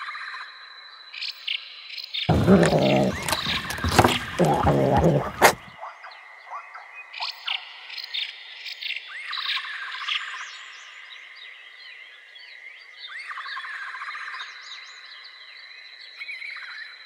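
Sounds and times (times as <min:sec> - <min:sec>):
wild birds chirping: 0:02.3 - 0:05.7.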